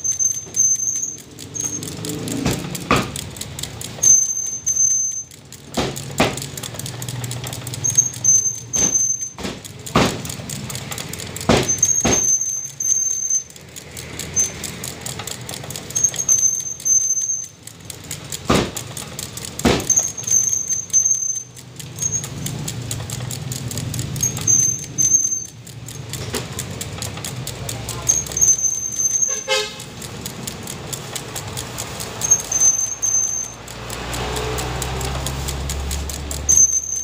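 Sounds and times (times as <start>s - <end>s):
high thin squeal: 28.4s - 29.8s.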